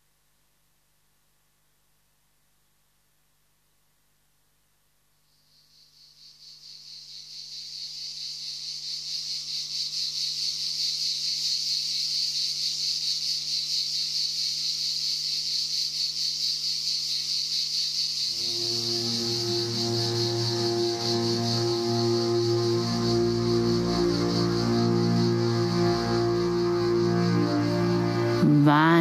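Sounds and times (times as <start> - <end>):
insect-like chirring: 5.2 - 29.0
music: 18.4 - 29.0.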